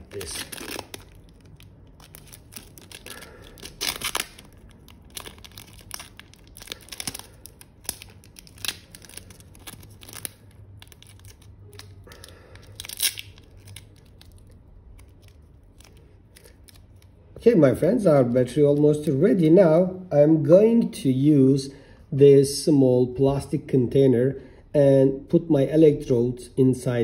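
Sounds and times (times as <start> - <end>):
adhesive tape ripping off roll: 0.0 - 17.1.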